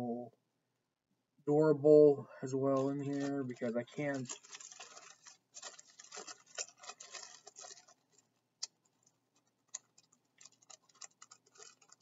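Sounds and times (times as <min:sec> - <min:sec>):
toys and packaging rustling: 0:02.6 - 0:12.0.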